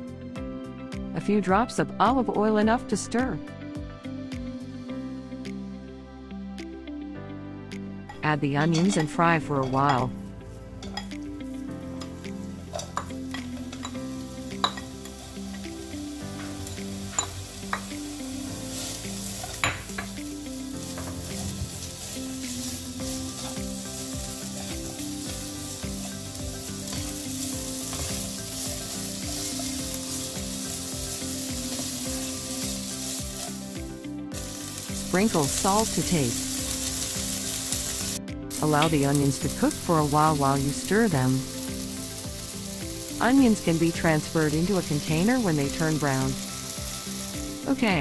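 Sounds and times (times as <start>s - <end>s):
onions sizzling in frying pan: 9.6s - 48.0s.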